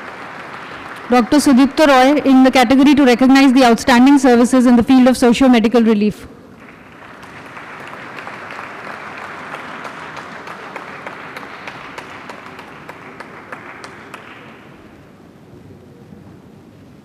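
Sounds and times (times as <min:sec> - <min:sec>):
audience applauding: 0:00.0 - 0:04.3, 0:06.5 - 0:15.1.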